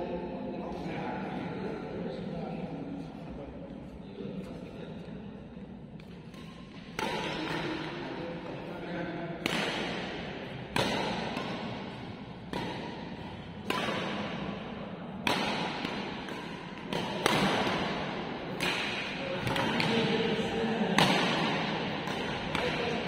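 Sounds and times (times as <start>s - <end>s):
rackets hitting shuttlecock: 6.0s - 8.6s, 9.3s - 23.0s.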